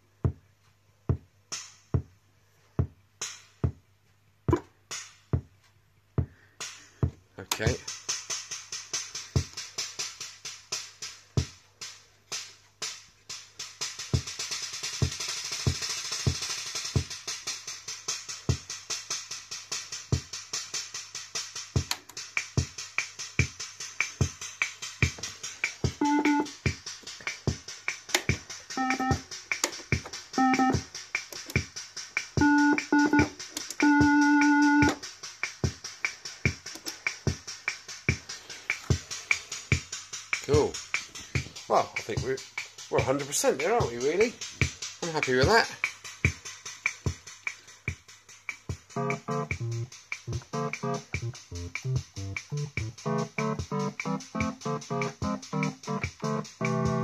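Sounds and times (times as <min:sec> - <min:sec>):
drum-machine beat: 0:00.2 - 0:00.5, 0:01.1 - 0:02.2, 0:02.8 - 0:57.0
hissing cymbal-like sound: 0:13.4 - 0:32.4, 0:34.9 - 0:49.1
organ chords: 0:25.9 - 0:26.6, 0:28.7 - 0:29.2, 0:30.4 - 0:30.8, 0:32.4 - 0:35.0, 0:49.0 - 0:57.0.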